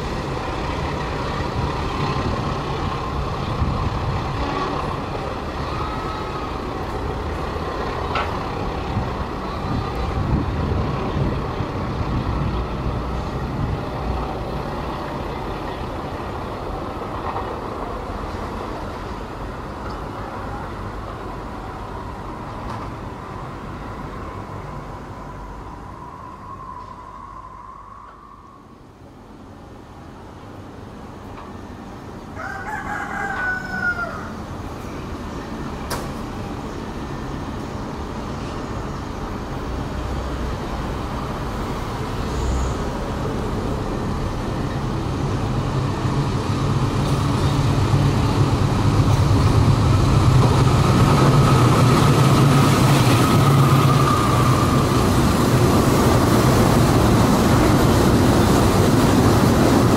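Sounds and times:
diesel locomotive engine drone: 0:00.0 - 0:59.9
rooster crowing: 0:32.4 - 0:34.4.

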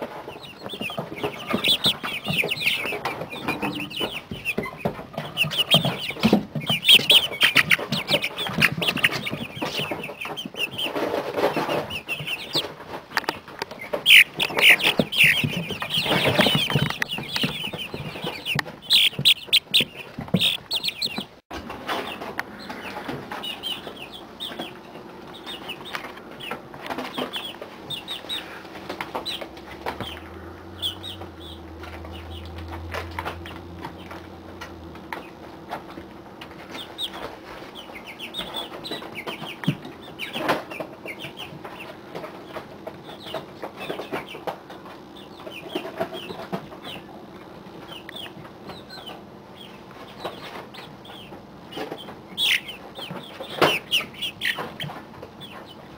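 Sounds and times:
clicks and rustles: 0:00.0 - 0:30.4
chicks peeping: 0:00.0 - 0:55.9
low steady hum: 0:00.0 - 0:55.9.

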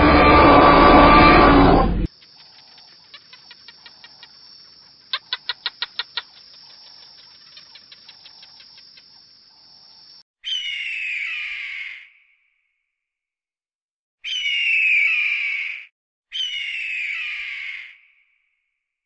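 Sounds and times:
bird of prey scream: 0:10.4 - 0:12.2, 0:14.2 - 0:18.3.

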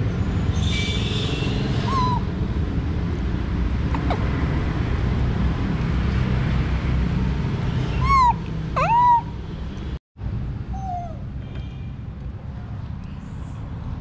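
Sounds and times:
baby monkey crying calls: 0:01.8 - 0:02.3, 0:07.9 - 0:09.4, 0:10.7 - 0:11.3.

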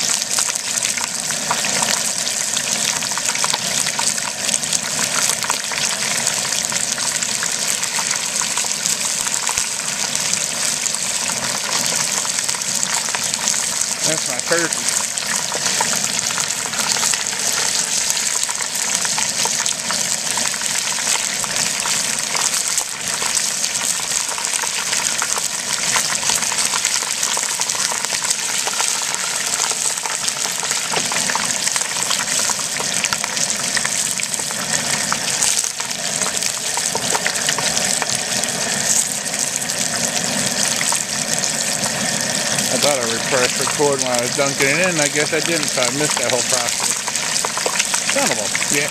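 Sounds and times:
oil bubbling and sizzling: 0:00.0 - 0:48.9.

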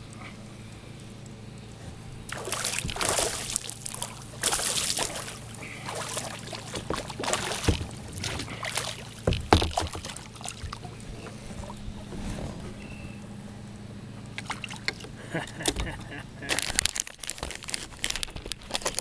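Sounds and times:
kayak paddle splashing water: 0:02.3 - 0:12.1.

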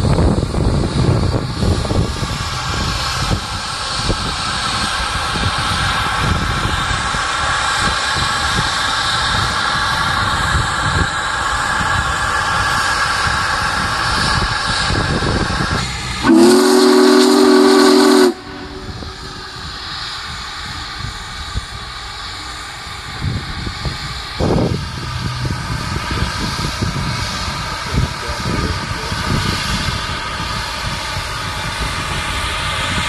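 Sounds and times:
steam locomotive rumble and hiss: 0:00.0 - 0:33.0
steam whistle: 0:16.2 - 0:19.7.

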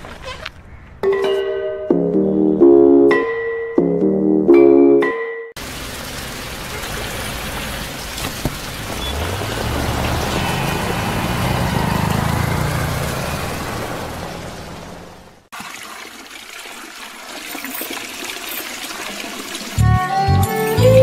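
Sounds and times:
rain hissing: 0:05.6 - 0:15.5
vehicle engine running: 0:06.2 - 0:15.5.

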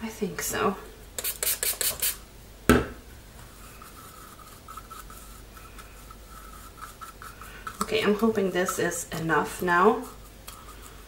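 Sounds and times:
stick scraping inside a cup: 0:03.7 - 0:08.8, 0:09.5 - 0:11.0.

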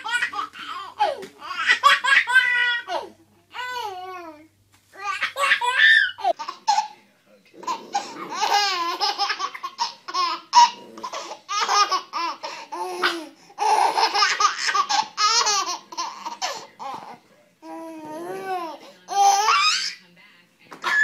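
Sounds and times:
baby laughing: 0:00.0 - 0:04.3, 0:05.0 - 0:07.0, 0:07.6 - 0:17.2.

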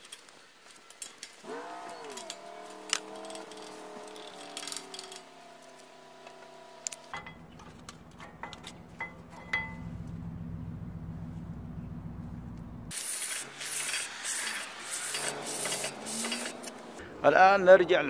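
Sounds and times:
metallic clicks of brake pads: 0:00.0 - 0:10.4
low rumble: 0:07.2 - 0:12.9.

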